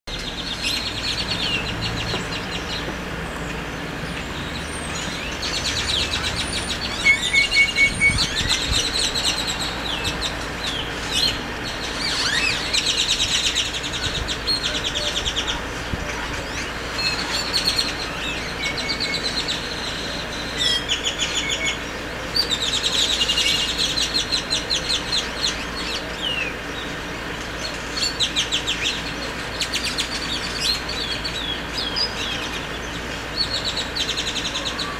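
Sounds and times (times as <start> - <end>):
birds chattering and whistling: 0.1 - 34.9.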